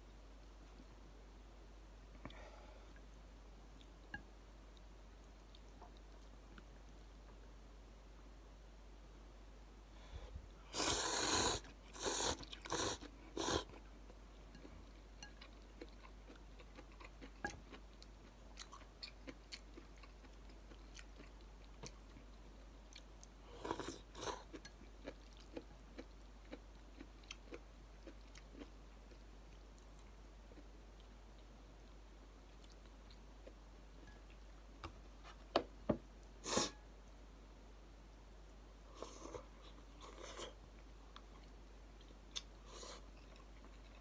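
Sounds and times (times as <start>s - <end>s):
person slurping noodles: 10.7s - 13.7s.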